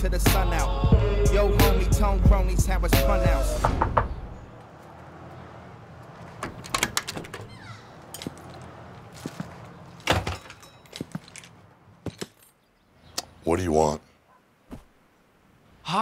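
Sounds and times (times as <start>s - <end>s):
door opening: 3.3s - 12.6s
knocks on wooden door: 3.6s - 4.3s
loud thump: 3.6s - 4.4s.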